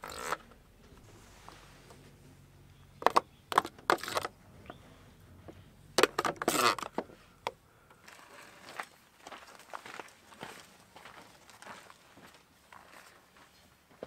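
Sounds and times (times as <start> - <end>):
low steady hum: 0.0 - 8.8
small hard objects clattering: 3.0 - 4.4.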